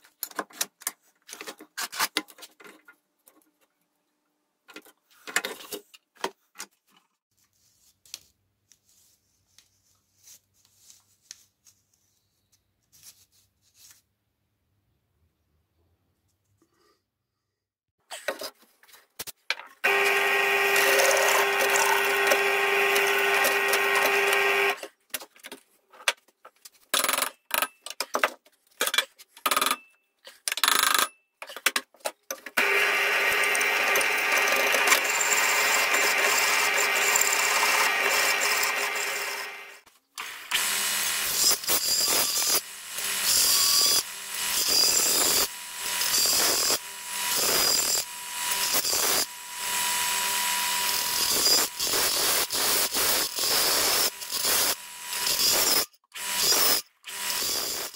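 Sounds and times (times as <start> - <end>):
belt sander grinding metal: 19.8 - 24.8, 32.6 - 57.9
pillar drill cutting metal: 19.8 - 24.8, 32.6 - 57.9.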